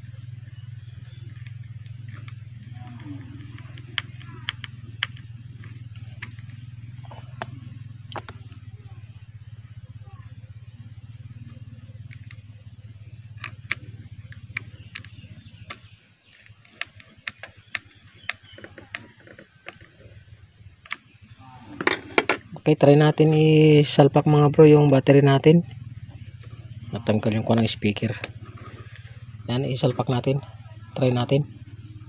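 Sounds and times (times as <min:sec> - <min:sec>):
steady low hum: 0:00.0 - 0:32.0
clicks and taps of small screws: 0:13.4 - 0:19.9.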